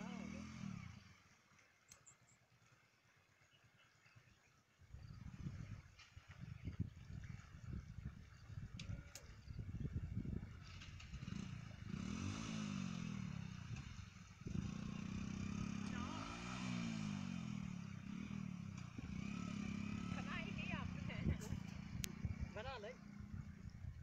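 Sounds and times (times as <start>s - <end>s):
motorcycle engine revving: 0.0s - 1.2s, 8.9s - 24.0s.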